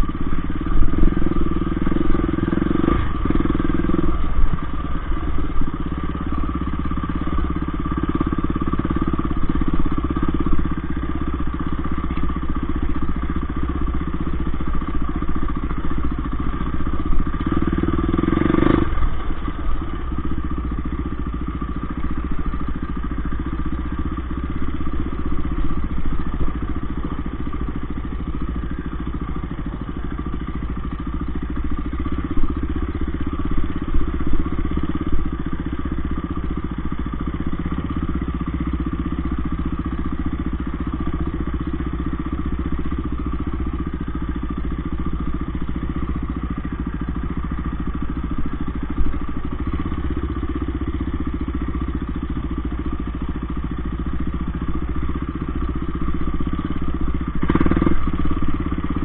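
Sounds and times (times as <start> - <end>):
dirt bike engine running: 0.0 - 59.0.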